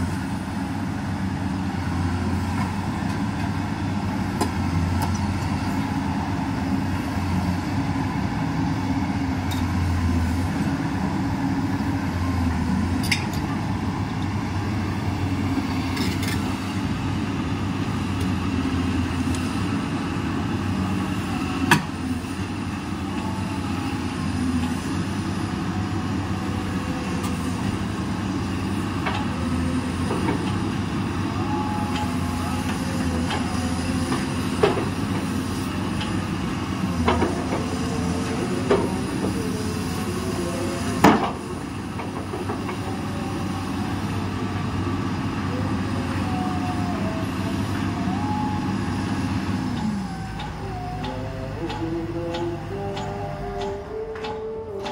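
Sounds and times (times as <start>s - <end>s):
excavator diesel engine running: 0.0s - 54.9s.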